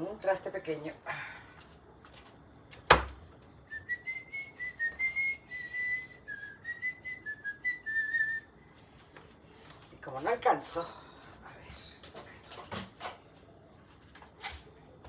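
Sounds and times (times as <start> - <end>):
person whistling a tune: 3.7 - 8.5.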